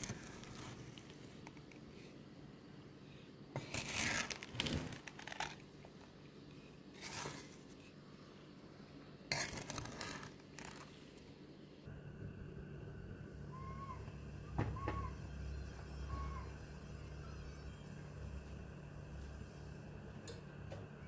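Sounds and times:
spoon scraping sugar in pot: 9.3 - 10.3.

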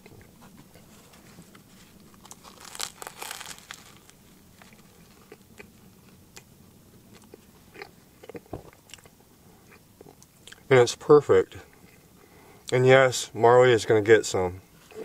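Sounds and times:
chewing with small crunches: 0.0 - 10.7, 11.6 - 12.8
crisp crunch of bread crust: 0.1 - 6.5.

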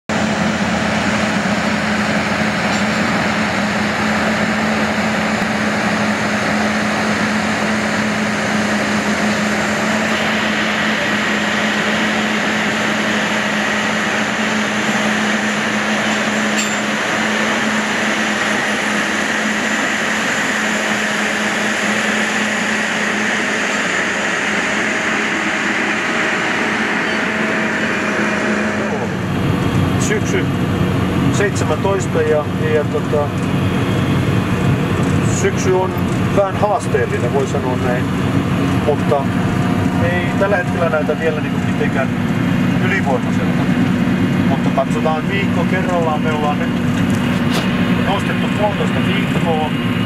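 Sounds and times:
harvester mechanical noise: 0.1 - 50.0
low engine hum: 0.1 - 50.0.

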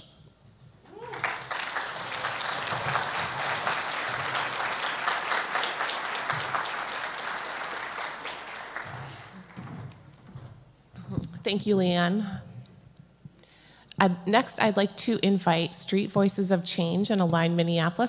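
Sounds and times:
audience applauding: 0.8 - 9.7.

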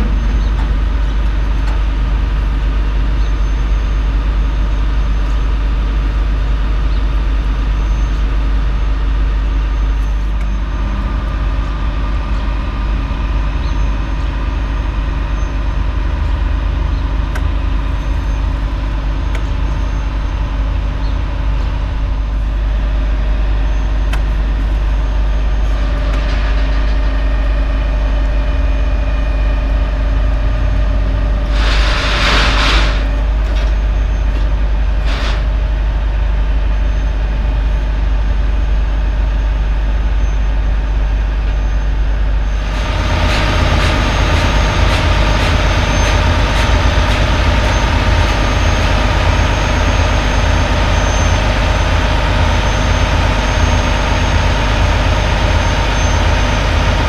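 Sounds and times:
higher engine tone: 0.0 - 6.5
truck engines running: 0.0 - 57.0.

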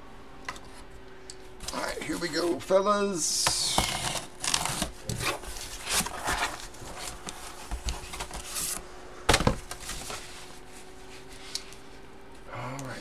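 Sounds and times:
cardboard box scraping and rustling: 3.6 - 8.8.

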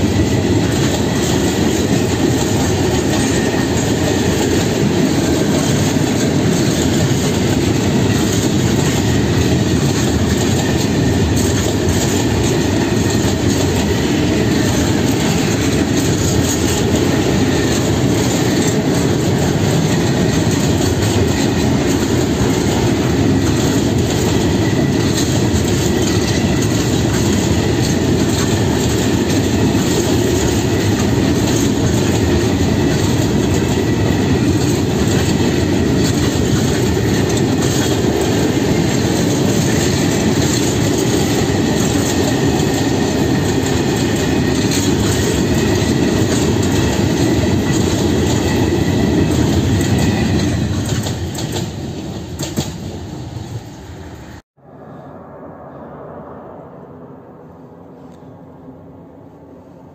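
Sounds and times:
train wheels rumbling on rails: 0.0 - 59.9
faint high squeal: 54.6 - 59.9.

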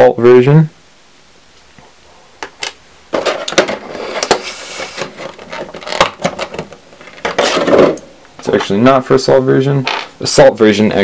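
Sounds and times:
plastic parts clicking and rattling: 2.6 - 4.4, 5.0 - 8.0
plastic tray crinkling: 3.1 - 8.8.

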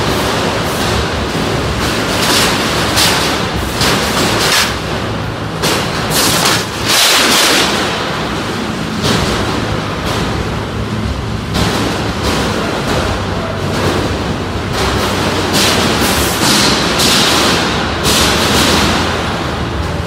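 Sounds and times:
combat robots banging: 0.0 - 20.0
steady rumble: 0.0 - 20.0.

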